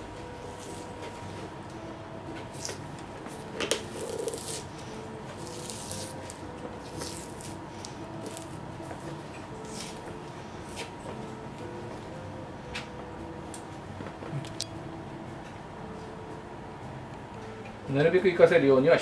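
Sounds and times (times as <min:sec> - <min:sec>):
faint background music: 0:00.0 - 0:19.0
leather sole tearing: 0:03.7 - 0:04.7.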